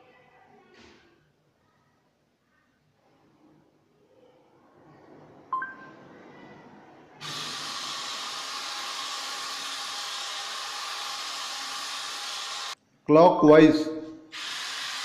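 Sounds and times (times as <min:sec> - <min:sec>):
short electronic beep: 0:05.5 - 0:06.0
small motors whirring: 0:07.2 - 0:12.8, 0:14.3 - 0:15.0.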